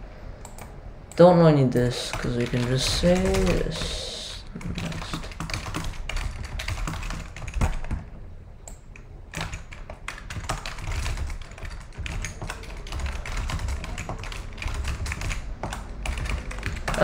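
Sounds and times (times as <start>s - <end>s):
keyboard typing clicks: 0.4s - 1.2s, 4.6s - 17.0s.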